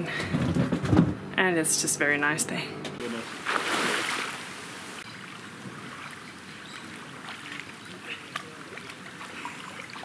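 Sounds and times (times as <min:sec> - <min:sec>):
small water splashes: 0:03.2 - 0:10.0.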